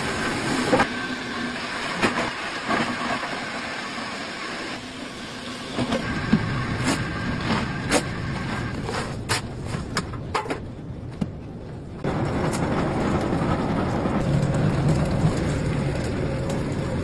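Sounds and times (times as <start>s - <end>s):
plastic crusher running: 0.0s - 9.3s.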